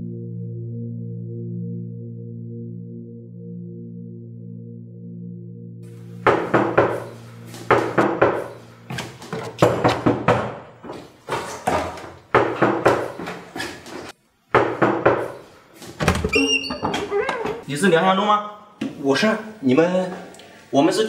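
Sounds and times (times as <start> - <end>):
hard knocking on a door: 6.3 - 7.1, 7.7 - 8.5, 9.6 - 10.6, 12.3 - 13.1, 14.6 - 15.4.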